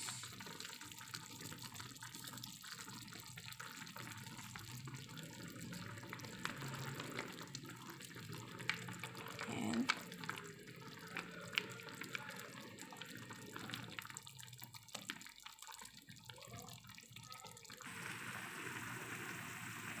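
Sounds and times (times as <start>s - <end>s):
soup bubbling in a pot: 0.0s - 20.0s.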